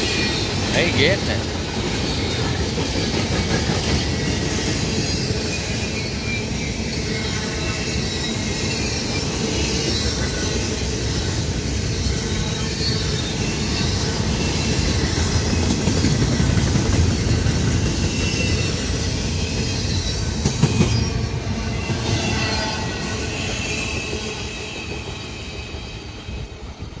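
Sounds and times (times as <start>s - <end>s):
train wheels rumbling on rail: 0.0s - 27.0s
high wheel squeal: 4.0s - 15.6s, 17.1s - 26.6s.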